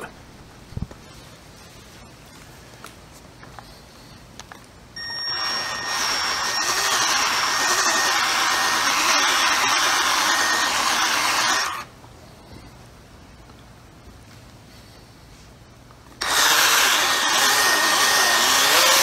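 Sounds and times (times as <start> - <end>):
polisher motor whine: 5.0 - 11.8, 16.2 - 19.0.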